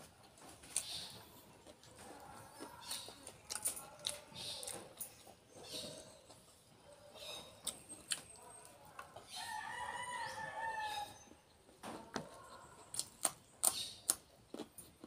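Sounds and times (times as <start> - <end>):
rooster crowing: 9.3 - 11.2.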